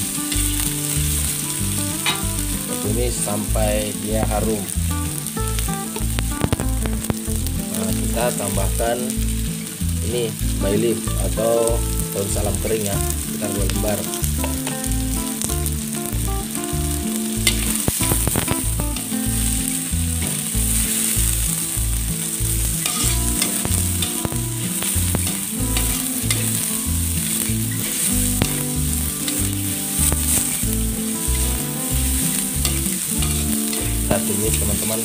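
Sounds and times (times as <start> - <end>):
aromatics sizzling in hot oil: 0.0 - 35.0
metal spatula scraping wok: 22.8 - 24.1.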